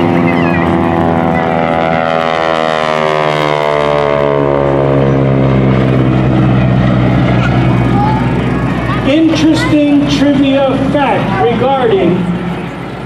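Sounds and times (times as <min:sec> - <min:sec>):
propeller plane flyby: 0:00.0 - 0:13.0.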